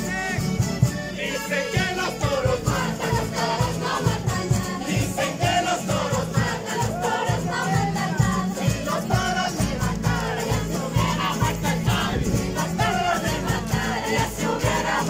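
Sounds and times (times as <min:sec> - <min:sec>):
acoustic guitars and accordion playing: 0:00.0 - 0:15.0
group of people singing: 0:00.0 - 0:15.0.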